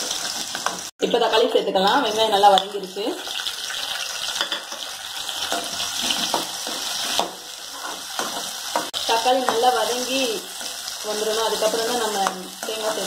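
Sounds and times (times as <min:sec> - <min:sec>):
tomatoes sizzling in hot oil: 0:00.0 - 0:13.0
metal spoon scraping pan: 0:04.4 - 0:09.6.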